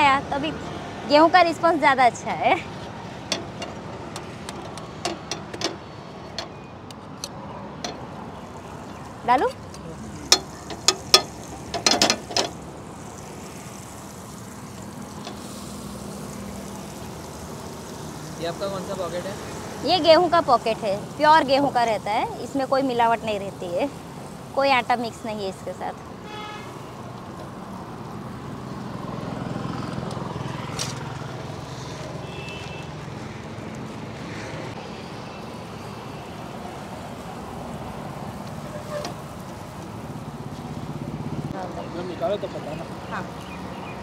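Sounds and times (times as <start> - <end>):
butter sizzling on a griddle: 8.4 - 29.0.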